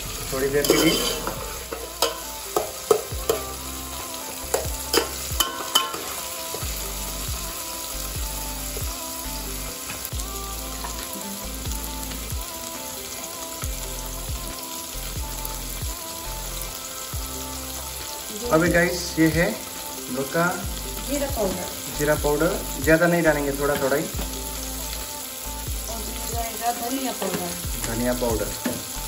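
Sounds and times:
vegetables sizzling in oil: 0:00.0 - 0:29.0
spatula scraping a pot: 0:00.6 - 0:03.1.

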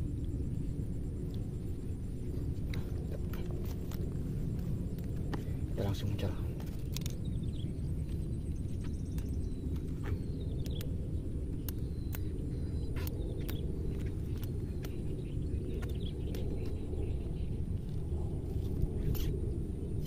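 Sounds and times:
wind rumble on microphone: 0:00.0 - 0:20.0
fishing rod clicks and taps: 0:11.6 - 0:12.3.

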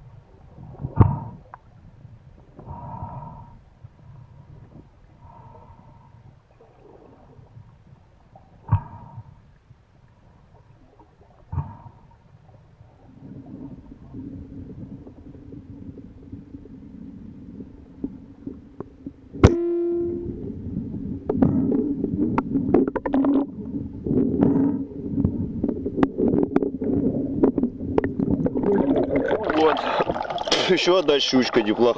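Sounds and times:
low underwater hum: 0:00.0 - 0:31.7
brief ringing tone: 0:19.5 - 0:20.4.

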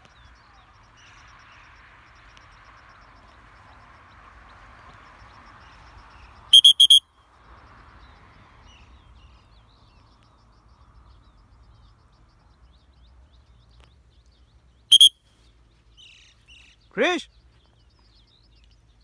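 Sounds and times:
high-pitched whistle blasts: 0:06.5 - 0:07.0, 0:14.9 - 0:15.2.

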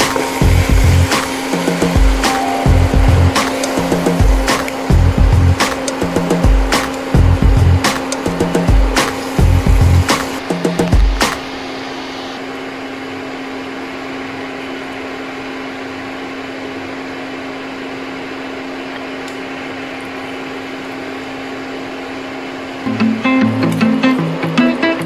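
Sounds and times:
plucked-string background music: 0:00.1 - 0:09.0, 0:22.9 - 0:25.0.

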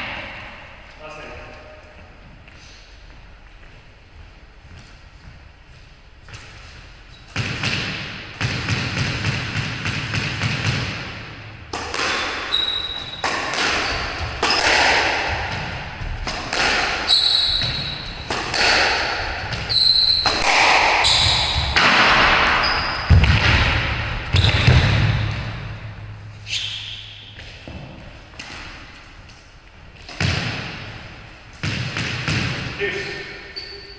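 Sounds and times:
squash ball hitting racquets: 0:07.3 - 0:33.9
shoes squeaking on wooden floor: 0:17.0 - 0:18.4, 0:19.5 - 0:21.8, 0:22.5 - 0:23.2.

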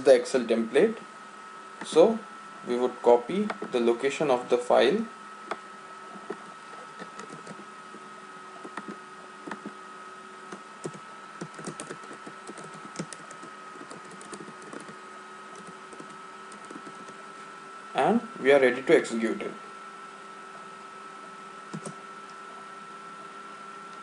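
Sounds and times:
faint hum: 0:00.0 - 0:24.0
keyboard keys clicking: 0:07.0 - 0:07.6, 0:10.8 - 0:17.2, 0:21.7 - 0:22.0.

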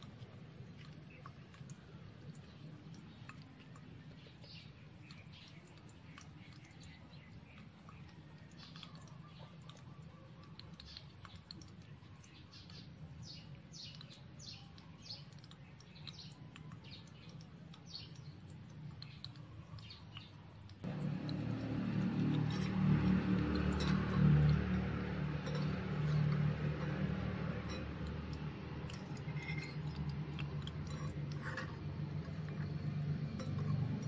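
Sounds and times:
small birds chirping: 0:00.6 - 0:34.0
food frying in oil: 0:20.8 - 0:34.0.

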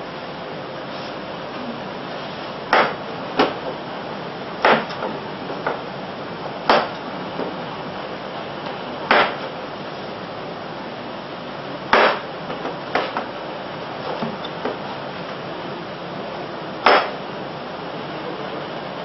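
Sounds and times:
background hiss: 0:00.0 - 0:19.0.

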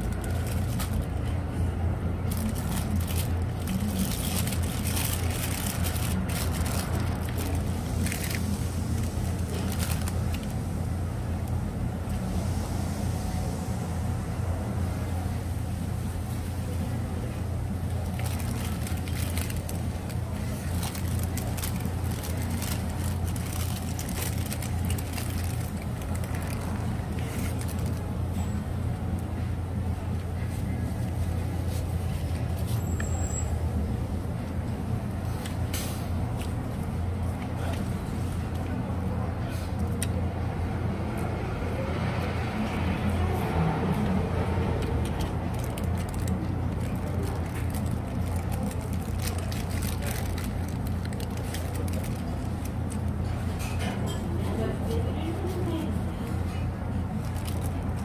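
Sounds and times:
paper wrapper crinkling: 0:00.0 - 0:01.4, 0:02.3 - 0:10.6, 0:17.9 - 0:28.1, 0:45.2 - 0:53.1, 0:57.1 - 0:58.0
restaurant background hum: 0:00.0 - 0:58.0.

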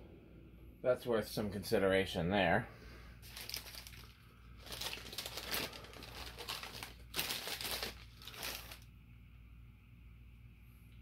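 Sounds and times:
ceiling fan motor hum: 0:00.0 - 0:11.0
wrapper crinkling: 0:03.2 - 0:08.9.

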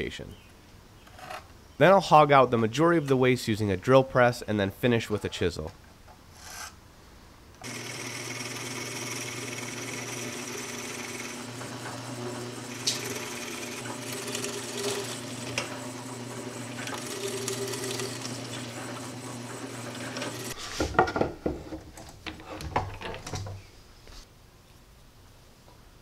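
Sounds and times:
drill bit cutting wood: 0:07.6 - 0:20.6
drill press motor hum: 0:07.6 - 0:20.6.

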